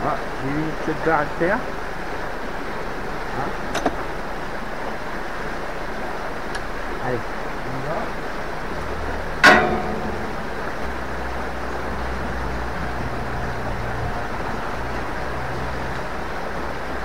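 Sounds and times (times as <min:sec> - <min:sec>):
river rushing: 0:00.0 - 0:17.0
metallic clang ringing: 0:09.4 - 0:10.9.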